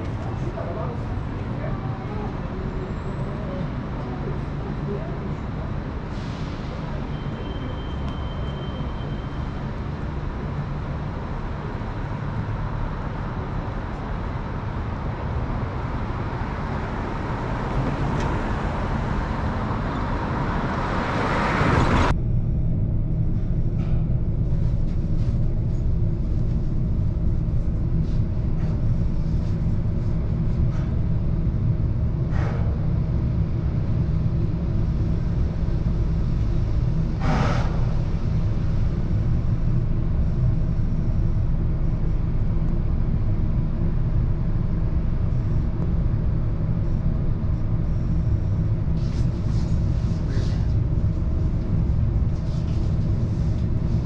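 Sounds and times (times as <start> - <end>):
passing vehicles: 0.0 - 22.2, 26.0 - 54.0
low rumble with faint hum: 0.0 - 54.0.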